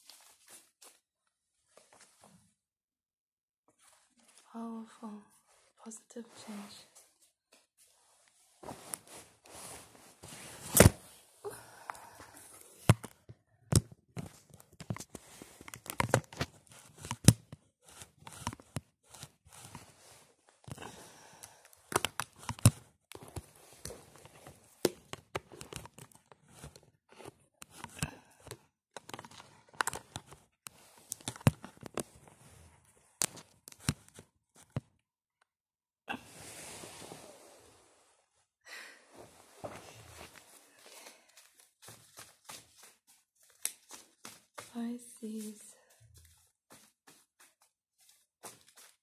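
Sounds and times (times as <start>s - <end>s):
jacket crinkling and rustling: 7.2s - 11.4s.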